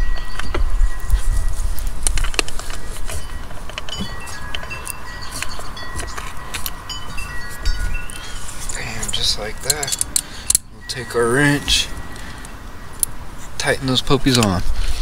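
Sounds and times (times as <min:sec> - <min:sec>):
wind rumbling on microphone: 0:00.0 - 0:10.2
wind chimes ringing: 0:00.0 - 0:14.7
small metallic clicks: 0:07.7 - 0:10.7.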